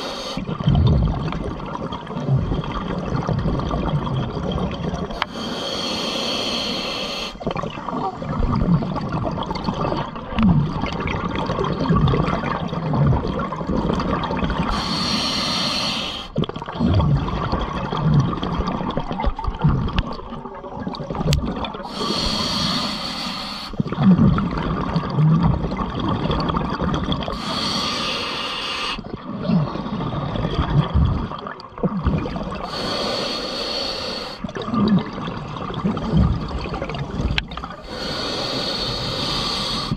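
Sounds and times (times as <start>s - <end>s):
diver breathing through regulator: 0.0s - 0.5s, 5.2s - 7.4s, 14.7s - 16.4s, 21.8s - 24.0s, 27.3s - 30.3s, 32.6s - 34.5s, 37.7s - 39.9s
bubbles gurgling: 0.0s - 5.5s, 7.2s - 39.9s.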